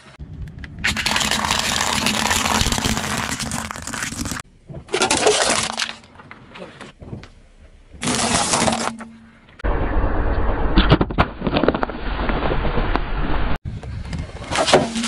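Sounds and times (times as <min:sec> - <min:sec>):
car tyre rumbling on asphalt: 0:00.0 - 0:03.6
objects cracking under tyre: 0:00.4 - 0:07.4.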